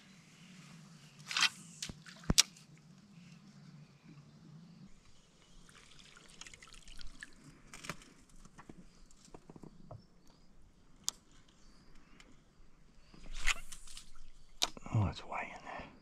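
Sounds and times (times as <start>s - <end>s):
water dripping and trickling: 5.6s - 7.5s.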